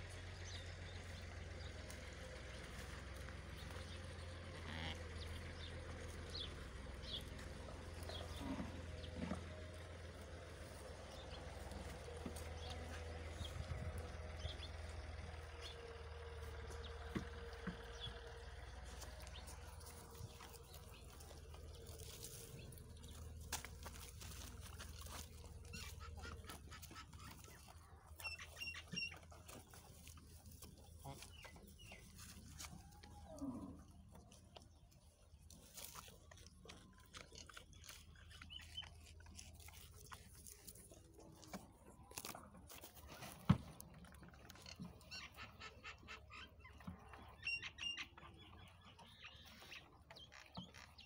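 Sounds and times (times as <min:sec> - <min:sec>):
low rumble: 0:00.0 - 0:26.5
birds chirping: 0:00.0 - 0:51.0
goats feeding: 0:00.0 - 0:51.0.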